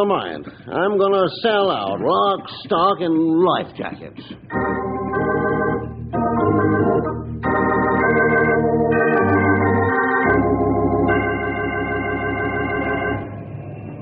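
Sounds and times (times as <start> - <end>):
organ playing held chords: 4.3 - 14.0.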